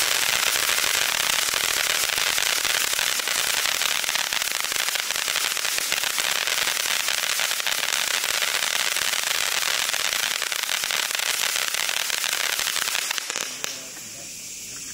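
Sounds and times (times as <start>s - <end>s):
firework crackles and pops: 0.0s - 14.9s
firework fountain hissing: 0.0s - 14.9s.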